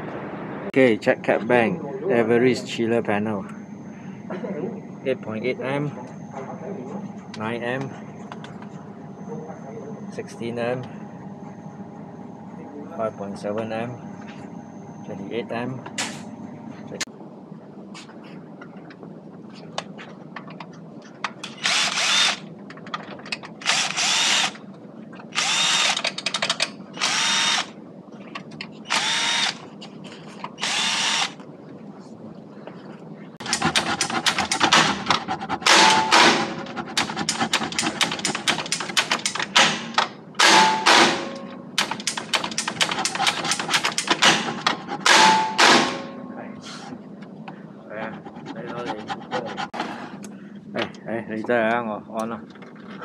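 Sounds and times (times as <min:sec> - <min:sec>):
cordless drill whirring: 0:21.5 - 0:22.4, 0:23.7 - 0:24.6, 0:25.3 - 0:26.0, 0:27.0 - 0:27.7, 0:28.9 - 0:29.6, 0:30.6 - 0:31.4
rapid clicking and rattling: 0:33.4 - 0:40.2, 0:41.8 - 0:45.1.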